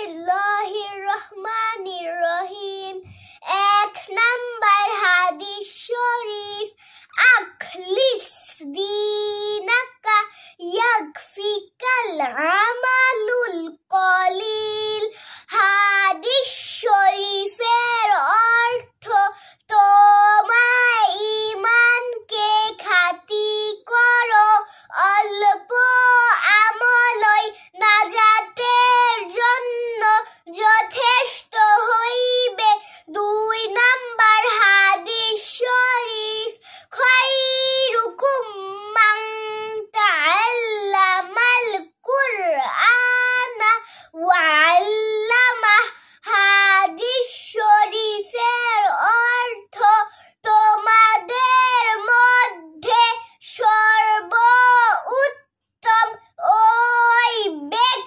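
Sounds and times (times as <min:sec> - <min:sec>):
girl singing in chanting style: 0:00.0 - 0:58.0.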